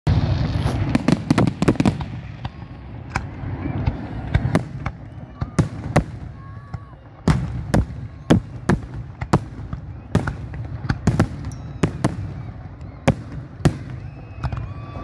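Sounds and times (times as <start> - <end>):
fireworks bangs: 0.1 - 15.0.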